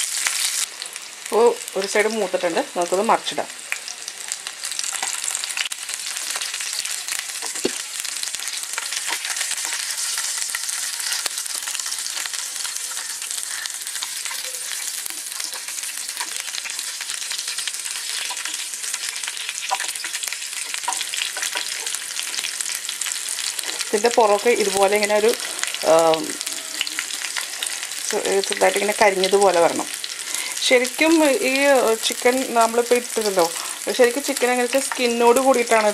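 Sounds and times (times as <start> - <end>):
chicken sizzling in a frying pan: 0.0 - 35.9
metal utensil clicks and scrapes: 8.8 - 11.3, 13.4 - 16.9.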